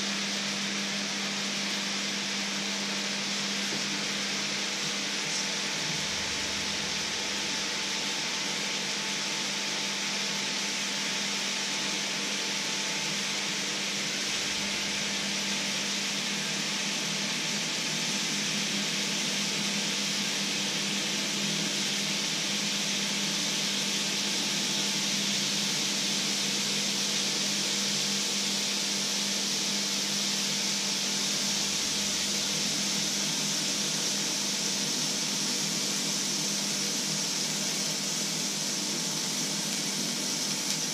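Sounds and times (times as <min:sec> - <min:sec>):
fat sizzling in a frying pan: 0:10.8 - 0:40.9.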